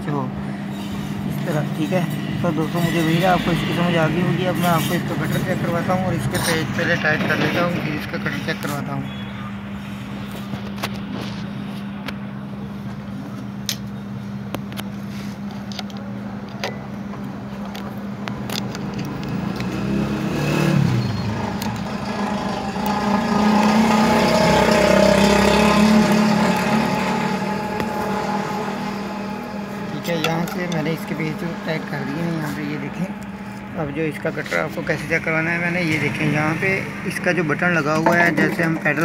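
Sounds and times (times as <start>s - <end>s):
loud rumbling noise: 0.4s - 8.6s, 18.1s - 39.0s
steady low hum: 21.4s - 39.0s.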